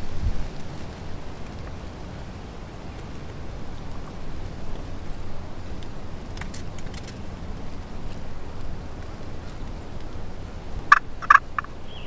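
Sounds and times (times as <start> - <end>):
wind rumble on microphone: 0.0 - 12.0
faint ticks: 0.4 - 12.0.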